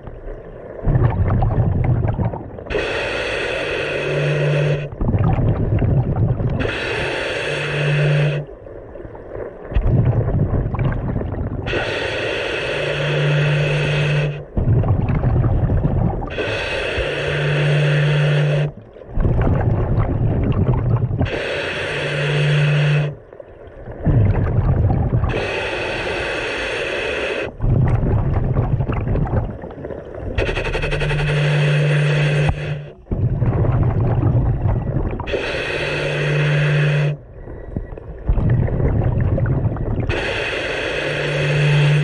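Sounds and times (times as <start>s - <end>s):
rumble of exhaled bubbles: 0.0s - 2.9s, 4.6s - 7.1s, 8.3s - 11.9s, 13.6s - 16.7s, 17.6s - 21.5s, 22.8s - 26.1s, 27.5s - 40.5s
hissing inhale through regulator: 2.2s - 5.0s, 6.6s - 8.6s, 11.6s - 14.8s, 15.7s - 18.9s, 21.2s - 23.4s, 25.0s - 27.8s, 30.4s - 33.4s, 34.5s - 37.9s, 39.9s - 42.0s
regulator low hum: 27.4s - 42.0s.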